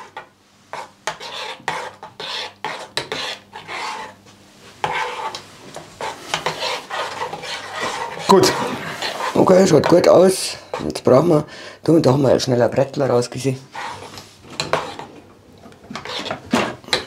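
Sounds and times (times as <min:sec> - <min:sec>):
metal spoon scraping a pot: 0:00.0 - 0:04.2, 0:04.8 - 0:05.4, 0:06.0 - 0:10.0, 0:13.7 - 0:15.1, 0:15.9 - 0:17.0.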